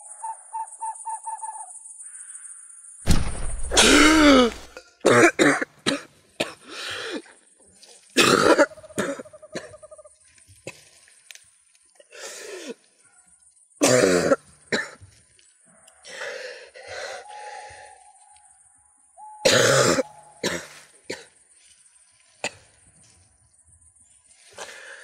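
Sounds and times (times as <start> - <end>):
man coughing: 3.7 - 6.6, 19.5 - 21.3.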